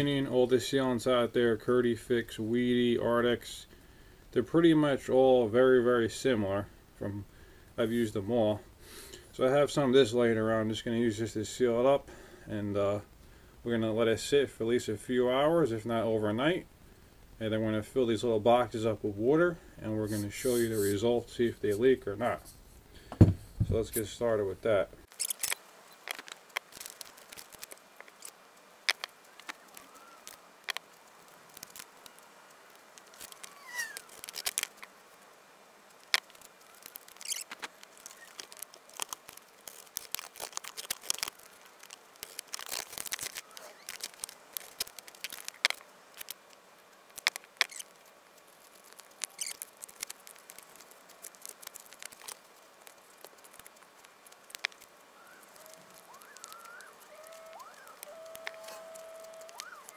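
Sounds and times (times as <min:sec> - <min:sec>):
foam panels rustling: 0:19.8 - 0:59.9.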